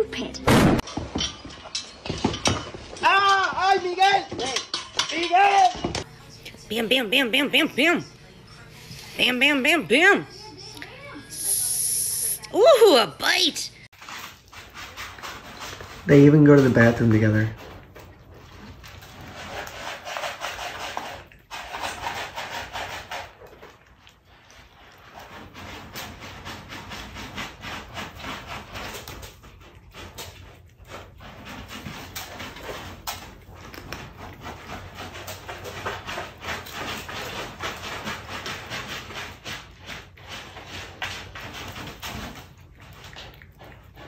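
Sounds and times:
cats scratching in litter: 13.9s - 44.0s.

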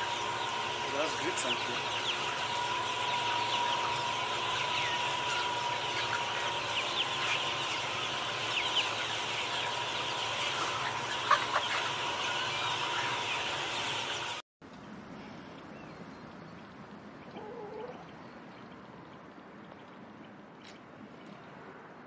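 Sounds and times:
chickens clucking: 0.0s - 14.4s, 17.2s - 18.2s.

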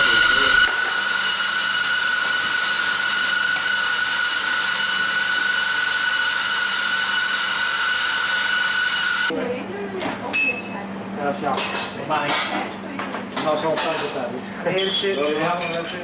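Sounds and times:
coffee grinder running: 0.0s - 9.3s.

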